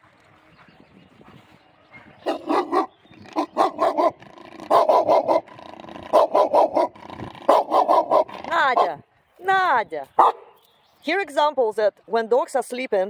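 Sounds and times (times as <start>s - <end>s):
dog barking: 2.2s - 5.5s, 6.1s - 9.0s, 10.2s - 10.6s.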